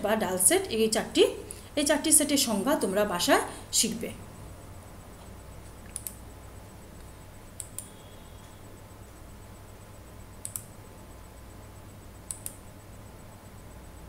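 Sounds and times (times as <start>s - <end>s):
low electrical hum: 0.0s - 14.0s
computer mouse clicking: 5.2s - 6.2s, 7.0s - 8.0s, 10.4s - 10.8s, 12.2s - 12.6s.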